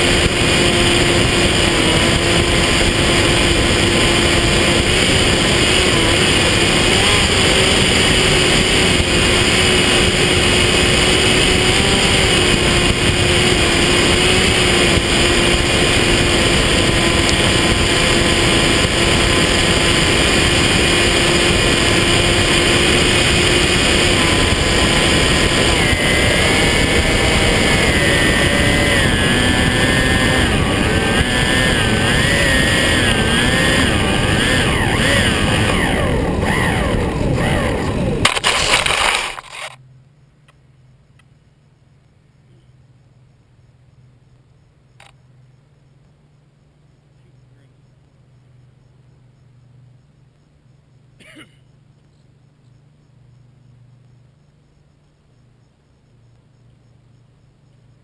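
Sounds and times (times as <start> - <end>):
wind rush over microphone: 0.0 - 38.3
electric motor and propeller whine: 0.0 - 39.8.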